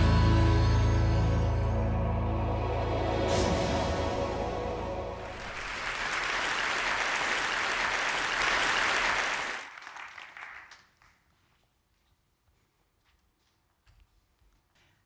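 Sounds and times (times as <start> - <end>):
large audience applauding: 5.2 - 11.2.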